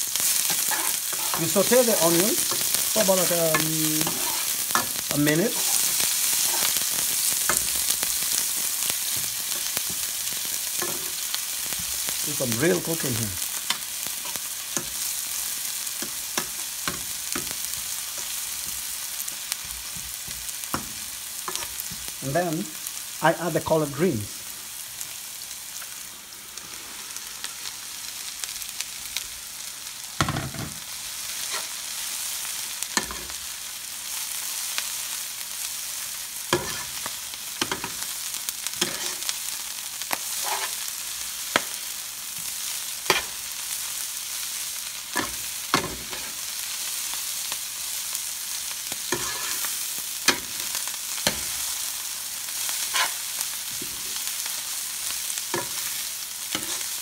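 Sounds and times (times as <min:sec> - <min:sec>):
greens sizzling in oil: 0:00.0 - 0:57.0
metal spoon scraping a pan: 0:00.1 - 0:07.8, 0:31.4 - 0:31.8, 0:36.6 - 0:37.0, 0:38.8 - 0:39.3, 0:40.3 - 0:40.8, 0:43.1 - 0:43.4, 0:49.1 - 0:49.7, 0:52.8 - 0:53.2, 0:56.5 - 0:57.0.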